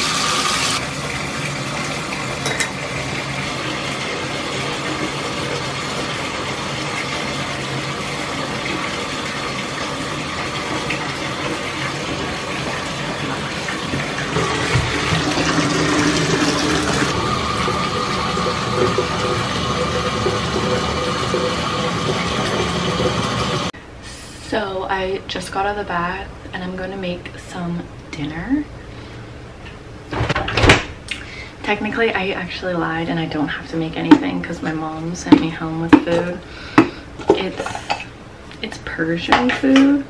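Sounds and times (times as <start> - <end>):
water running into a bathtub: 0.0 - 23.8.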